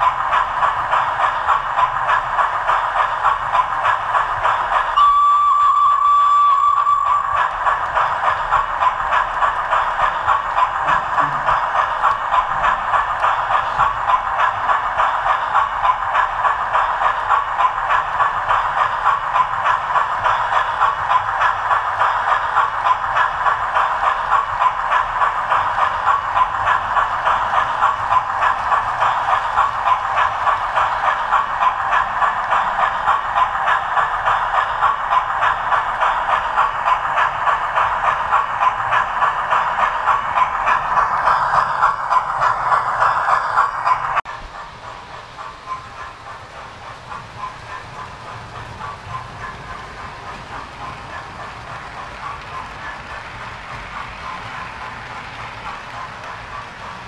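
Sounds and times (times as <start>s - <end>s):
model train rhythmic clatter: 0.0s - 57.0s
train whistle: 4.9s - 7.4s.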